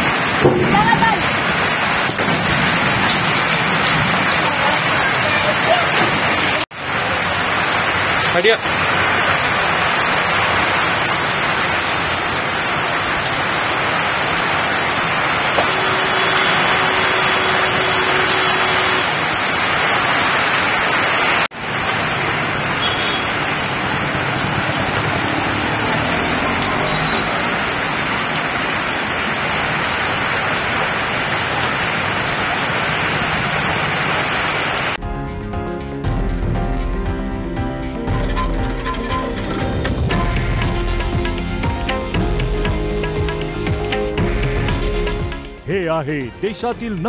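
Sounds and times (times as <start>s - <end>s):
heavy rain on wet road: 0.0s - 35.0s.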